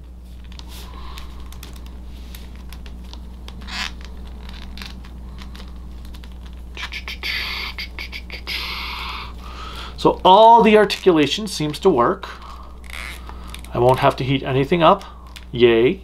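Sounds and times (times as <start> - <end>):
handling rustle: 0.0 - 6.8
steady low hum: 0.0 - 16.0.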